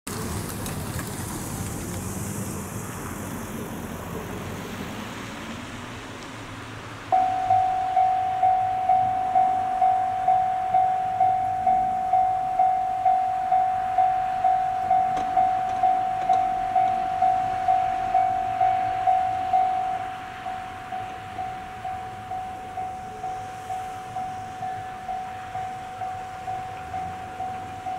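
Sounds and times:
outdoor background noise: 0:00.1 - 0:27.9
level crossing warning bell: 0:07.1 - 0:27.9.

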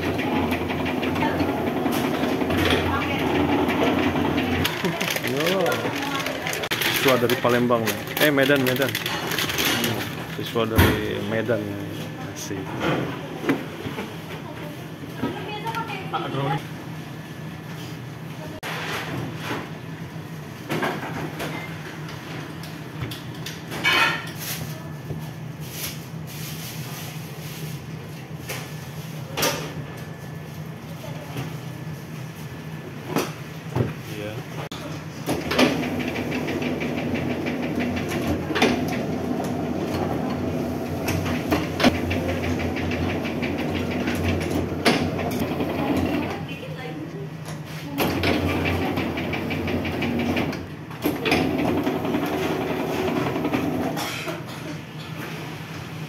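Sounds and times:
rollers rattling: 0:00.0 - 0:10.7, 0:35.6 - 0:46.4
low machine hum: 0:00.0 - 0:18.6, 0:28.1 - 0:54.7.

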